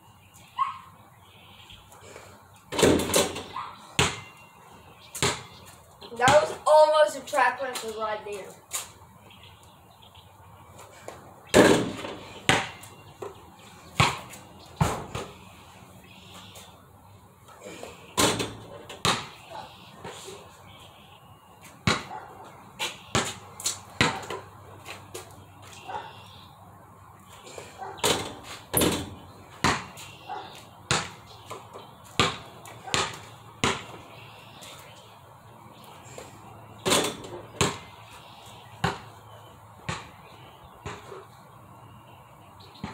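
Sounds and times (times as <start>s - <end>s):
basketball bouncing thuds: 2.7s - 4.4s, 5.2s - 5.6s, 11.5s - 13.4s, 14.0s - 15.4s, 18.2s - 19.4s, 21.8s - 22.1s, 24.0s - 24.5s, 28.0s - 30.0s, 30.9s - 34.0s, 36.8s - 37.9s, 38.8s - 39.1s, 39.9s - 40.2s, 40.8s - 41.1s.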